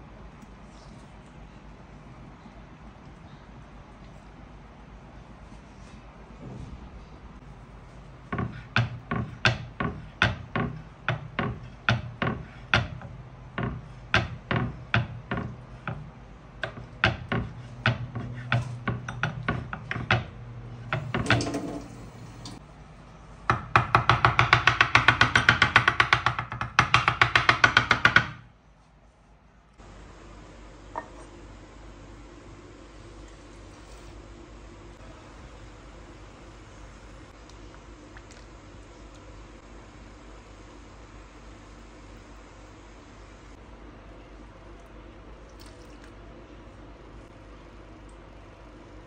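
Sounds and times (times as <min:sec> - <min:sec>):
knife chopping on wooden board: 0:08.3 - 0:16.0.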